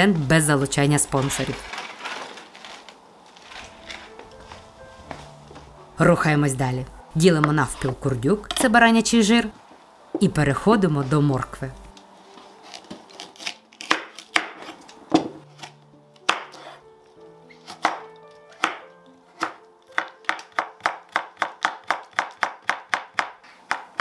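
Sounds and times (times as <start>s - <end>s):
knife chopping carrots on board: 13.8s - 16.8s, 17.6s - 24.0s.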